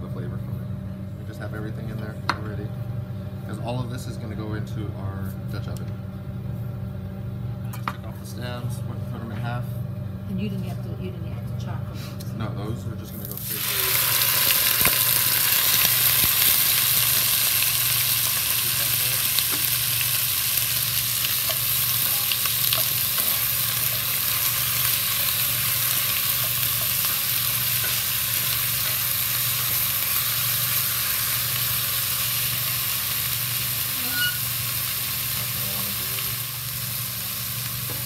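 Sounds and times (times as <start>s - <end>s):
chicken sizzling in hot oil: 13.3s - 38.0s.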